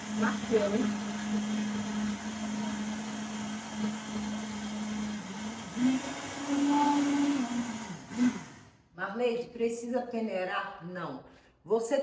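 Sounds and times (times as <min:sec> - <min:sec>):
blender motor running: 0:00.0 - 0:08.8.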